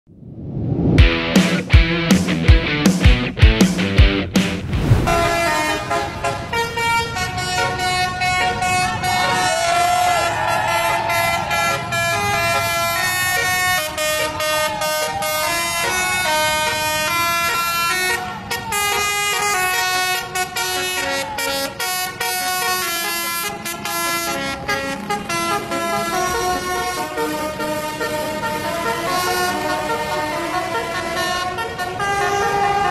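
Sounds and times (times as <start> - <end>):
multi-tone bus air horn tune: 5.1 - 32.9
children cheering: 8.9 - 19.8, 20.5 - 22.0.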